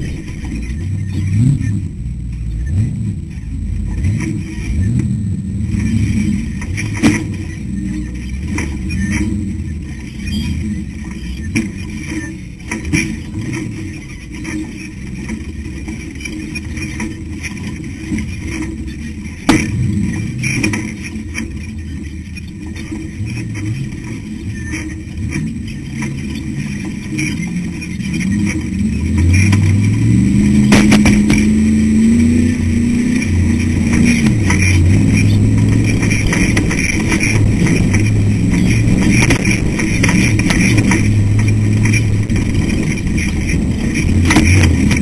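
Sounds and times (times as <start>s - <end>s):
race car engine: 0.0s - 45.0s
knocks over rocks: 30.6s - 31.5s.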